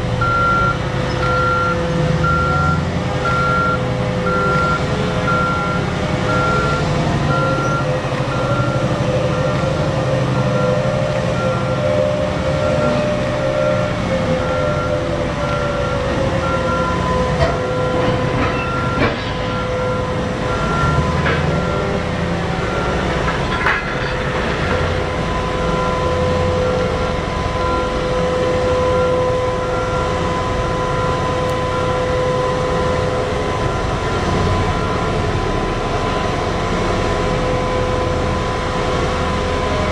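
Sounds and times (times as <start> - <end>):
haul truck drone with whine: 0.0 - 39.9.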